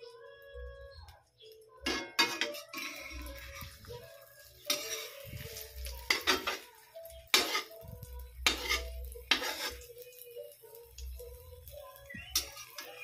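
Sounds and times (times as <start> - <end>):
metal spatula scraping a wok: 1.8 - 7.8, 8.4 - 10.2, 12.4 - 13.0.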